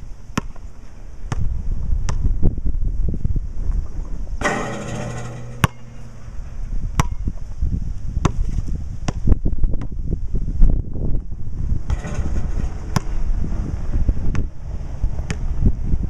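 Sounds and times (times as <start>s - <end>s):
wind buffeting microphone: 1.0s - 4.5s, 5.2s - 16.0s
basketball bouncing on concrete: 1.3s - 1.5s, 4.4s - 6.2s, 6.9s - 7.4s, 8.2s - 10.0s, 11.9s - 13.2s, 14.3s - 14.6s
ringing rattle: 4.4s - 6.6s.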